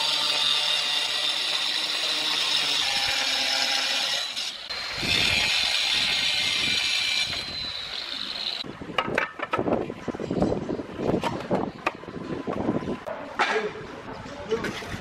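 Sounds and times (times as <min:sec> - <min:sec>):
electric tile cutter grinding: 0:00.0 - 0:08.6.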